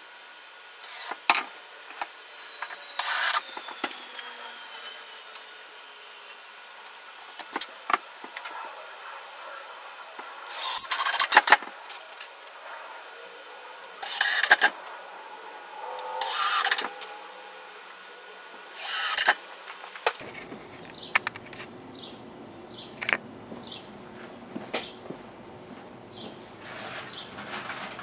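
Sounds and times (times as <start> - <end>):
cordless driver driving screws: 0.8 - 5.5, 10.5 - 12.3, 14.0 - 14.8, 16.2 - 16.9, 18.8 - 19.4.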